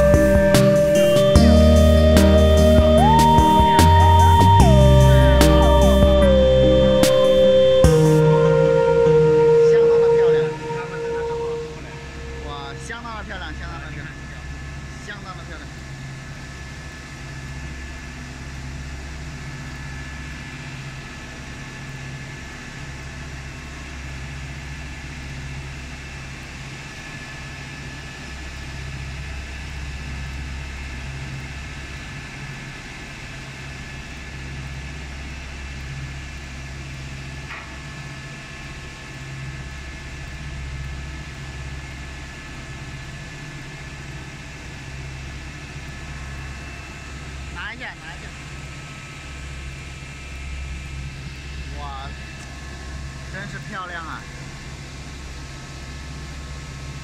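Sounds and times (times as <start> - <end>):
polishing machine motor hum: 0.0 - 14.2
thin steady whine: 0.0 - 57.0.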